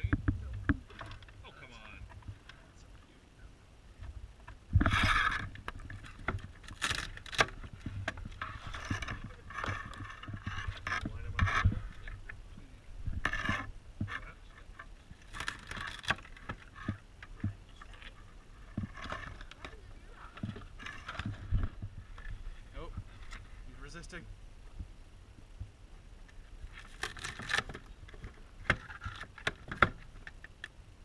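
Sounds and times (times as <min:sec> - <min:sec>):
crab shell cracking: 0:26.8 - 0:27.8.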